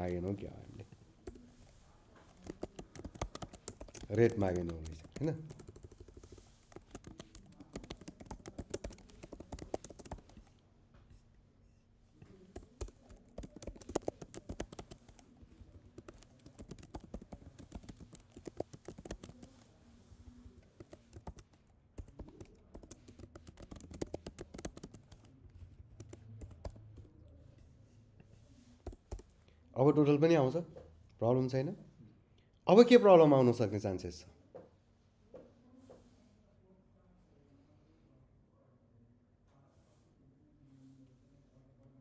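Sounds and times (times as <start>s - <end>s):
computer keyboard typing: 2.2s - 10.6s, 12.5s - 19.8s, 20.4s - 27.3s, 28.8s - 29.4s.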